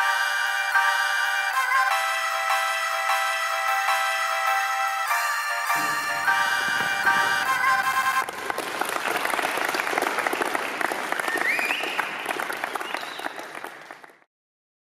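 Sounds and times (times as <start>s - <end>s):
group clapping: 5.7s - 14.3s.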